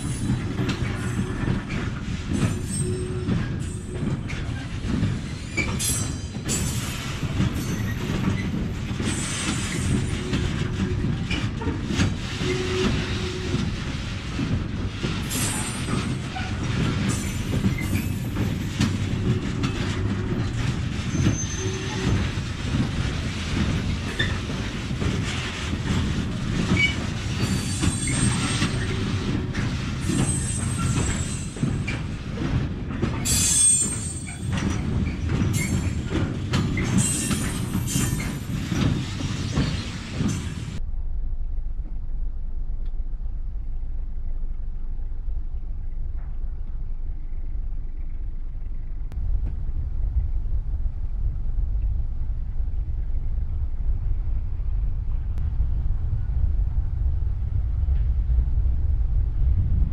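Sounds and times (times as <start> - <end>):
wheels clattering over rail joints: 0.0 - 40.8
freight train wheels rumbling: 0.0 - 59.9
metallic wheel squeal: 2.4 - 3.9, 21.1 - 22.2, 26.7 - 29.1, 30.0 - 32.0, 33.2 - 36.0.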